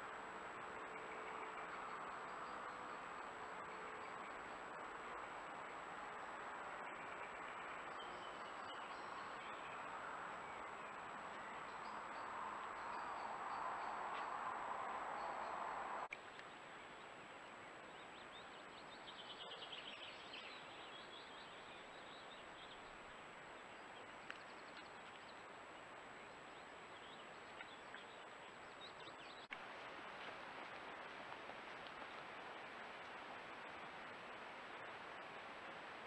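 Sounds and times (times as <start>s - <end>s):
recording hiss: 0.0s - 36.0s
small birds singing: 15.2s - 29.6s.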